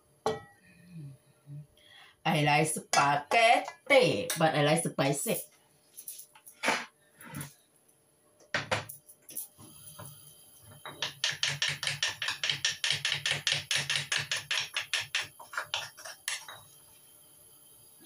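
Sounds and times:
fast chopping on cutting board: 0:11.0 - 0:16.2.

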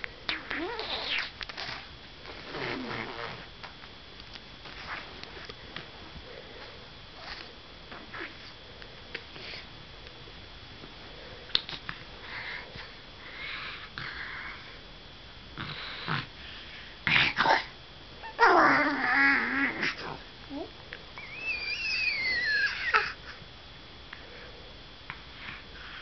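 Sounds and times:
baby snorting and sniffing: 0:00.3 - 0:03.5.

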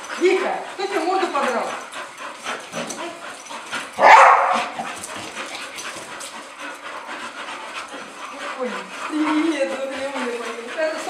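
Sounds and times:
dog barking: 0:04.0 - 0:04.7.

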